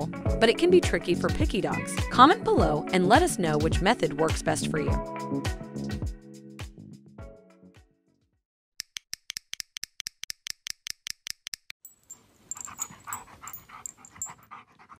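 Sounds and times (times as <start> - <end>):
dog panting and whimpering: 12.5 - 15.0.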